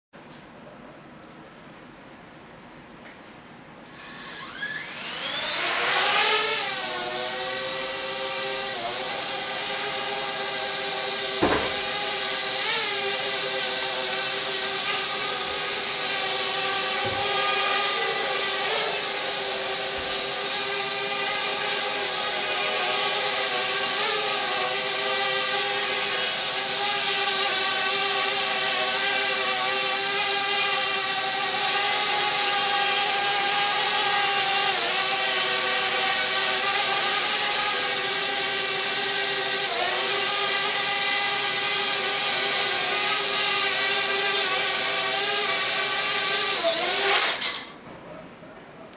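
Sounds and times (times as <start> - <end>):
drone motors buzzing: 4.0 - 45.5.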